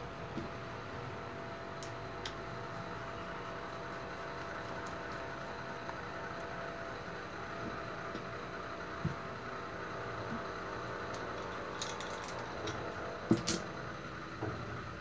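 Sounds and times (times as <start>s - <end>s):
metal parts clinking: 11.4s - 12.7s, 13.3s - 13.7s.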